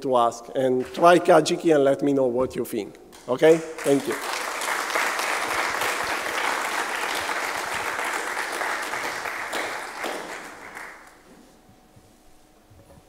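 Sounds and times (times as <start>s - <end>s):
audience applauding: 3.5s - 11.3s.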